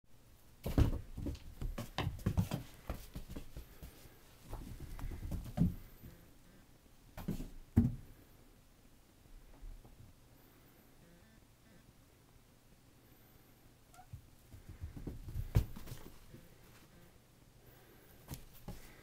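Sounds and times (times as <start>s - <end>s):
cat paws thumping on stairs: 0.6s - 6.2s, 7.2s - 8.1s, 14.1s - 16.4s.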